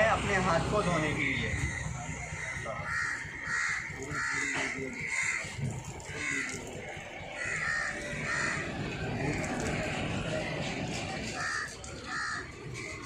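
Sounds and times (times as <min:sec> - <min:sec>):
crows cawing: 0:00.4 - 0:10.5, 0:11.1 - 0:13.0.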